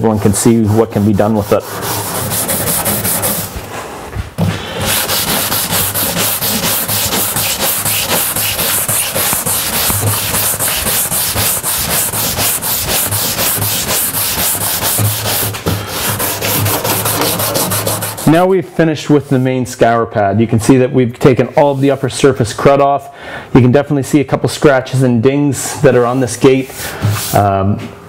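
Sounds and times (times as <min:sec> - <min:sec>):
scour pad scrubbing metal: 0:00.7 - 0:03.6, 0:04.8 - 0:18.4.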